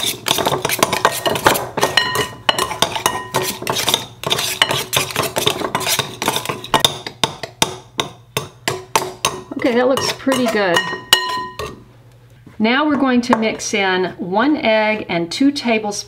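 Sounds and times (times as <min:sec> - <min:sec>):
metal utensil scraping glass bowl: 0:00.0 - 0:06.9, 0:09.2 - 0:11.8
glass bowl ringing: 0:02.0 - 0:03.4, 0:10.7 - 0:11.8.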